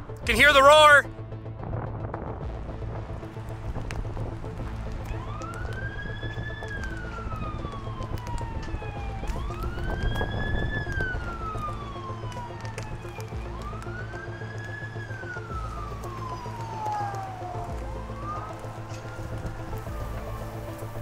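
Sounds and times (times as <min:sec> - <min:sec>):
low rumble: 0:01.1 - 0:11.8
warning siren wailing: 0:04.7 - 0:21.0.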